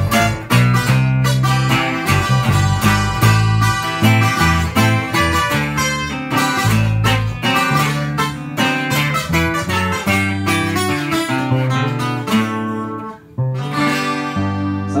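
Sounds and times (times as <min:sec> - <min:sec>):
acoustic guitars strumming chords: 0:00.0 - 0:15.0
electric bass guitar: 0:00.0 - 0:15.0.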